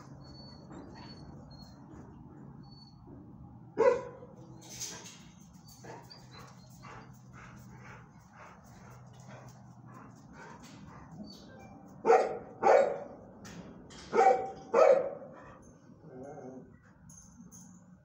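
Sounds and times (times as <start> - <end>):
dog yipping: 3.8 - 4.2, 12.1 - 13.0, 14.2 - 15.2
dog barking: 3.8 - 4.3, 12.0 - 13.2, 14.1 - 15.3.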